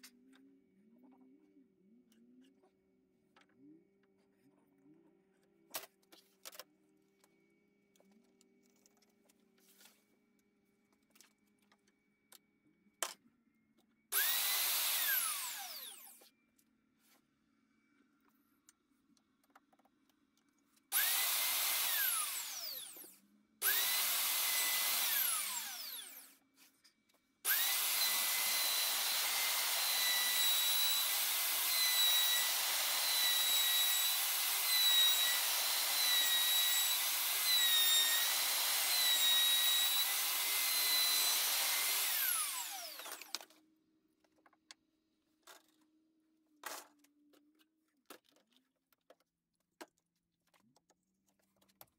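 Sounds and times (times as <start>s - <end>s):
electric router whining: 14.1s - 16.2s, 20.9s - 26.4s, 27.5s - 43.5s.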